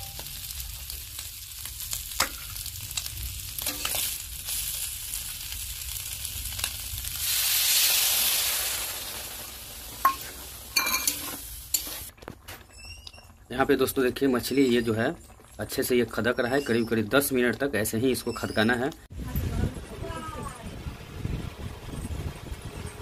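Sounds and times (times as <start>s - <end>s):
fish sizzling in a pan: 0.0s - 12.1s
liquid hissing in hot pan: 0.2s - 12.1s
spatula clinking: 3.6s - 4.1s, 10.0s - 12.0s.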